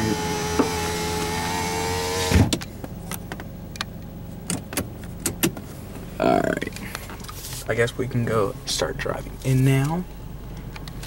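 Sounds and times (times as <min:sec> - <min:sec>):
power window motor whine: 0:00.0 - 0:02.6.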